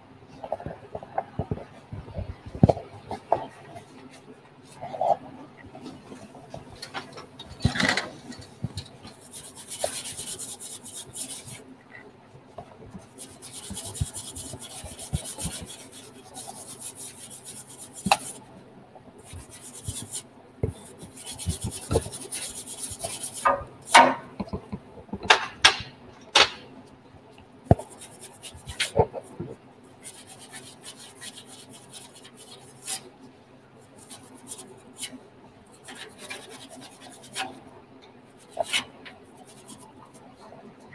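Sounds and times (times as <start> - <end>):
scrubbing on metal: 5.9 - 11.7, 13.0 - 18.4, 19.2 - 24.4, 27.7 - 29.4, 30.0 - 33.0, 33.9 - 37.6, 38.3 - 40.3.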